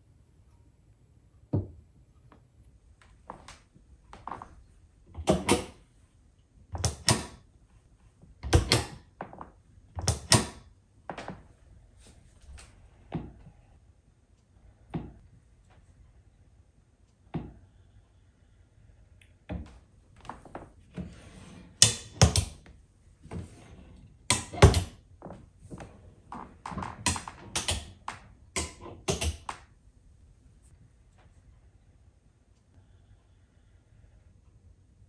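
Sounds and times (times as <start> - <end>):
cabinet doors clicking and knocking: 5.1 - 5.8, 6.8 - 7.4, 8.4 - 9.1, 9.9 - 11.4, 21.0 - 22.6, 24.2 - 25.0, 25.9 - 29.7.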